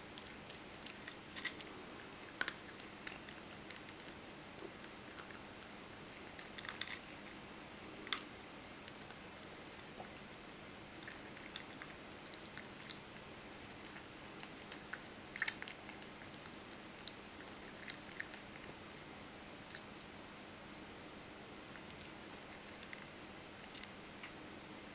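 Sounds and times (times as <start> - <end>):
cat crunching dry kibble: 0.0 - 10.0, 10.6 - 18.8.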